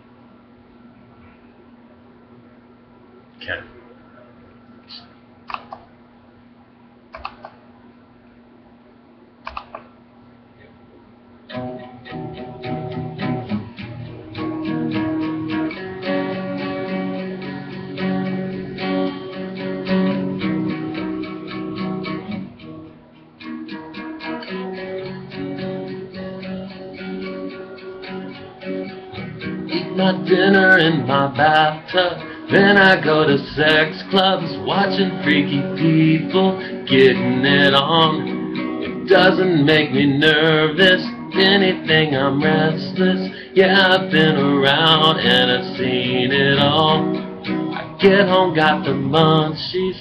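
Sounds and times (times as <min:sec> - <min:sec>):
faint clicks: 0:09.4 - 0:09.9
acoustic guitar strumming chords: 0:11.5 - 0:50.0.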